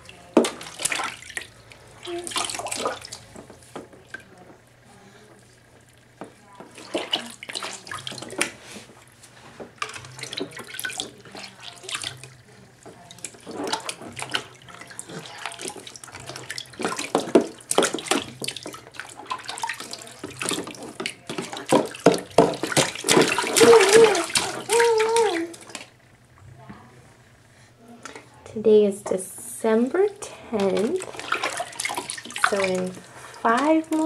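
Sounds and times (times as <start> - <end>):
baby splashing bath water: 0.0 - 26.0, 30.0 - 34.0
high voice: 23.6 - 25.6.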